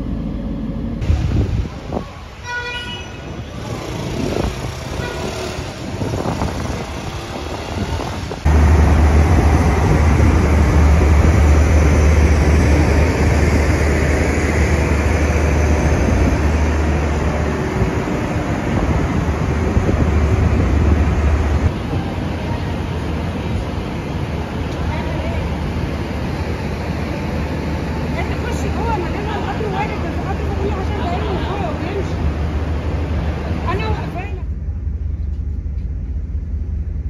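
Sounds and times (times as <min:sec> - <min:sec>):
passenger train rumbling past: 0:00.0 - 0:37.0
diesel engine idling drone: 0:08.4 - 0:21.7, 0:34.4 - 0:37.0.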